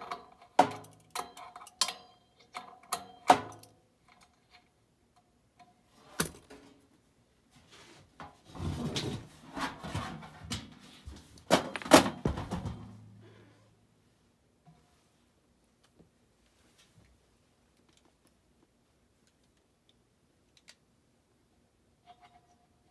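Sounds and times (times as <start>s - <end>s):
metal clanks and scraping: 8.2s - 13.0s.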